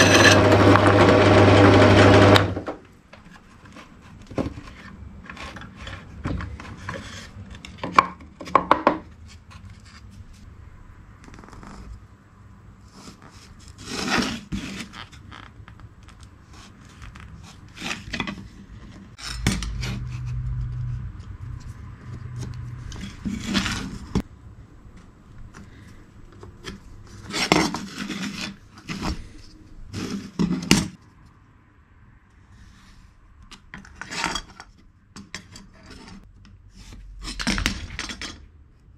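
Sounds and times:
tools and wood knocking: 2.6s - 9.2s
low hum: 19.2s - 25.4s.

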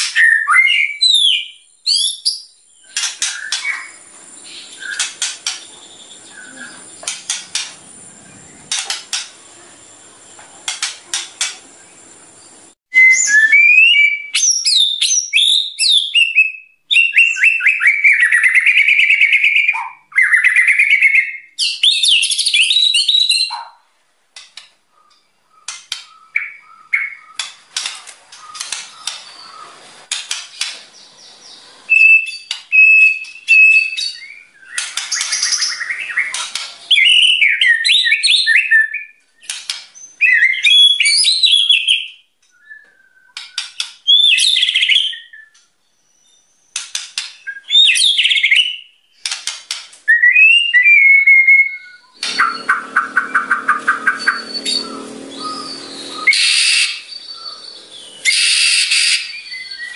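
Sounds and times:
bird singing whistled phrases: 0.0s - 5.1s, 12.9s - 23.5s, 31.9s - 39.2s, 40.0s - 46.5s, 47.4s - 48.9s, 50.1s - 59.9s
bird short notes and ticks: 52.1s - 57.7s.

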